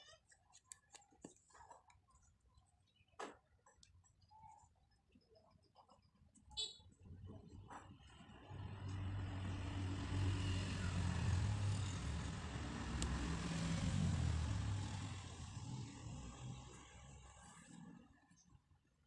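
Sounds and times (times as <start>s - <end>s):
motor vehicle passing by: 7.5s - 18.5s.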